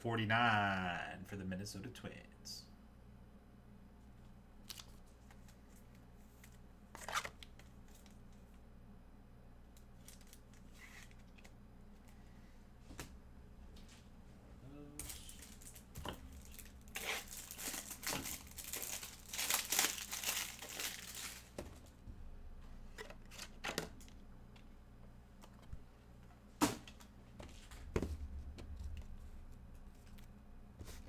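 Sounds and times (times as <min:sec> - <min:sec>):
wrapping tearing and crinkling: 0:04.6 - 0:05.8, 0:09.8 - 0:11.5, 0:15.0 - 0:21.6.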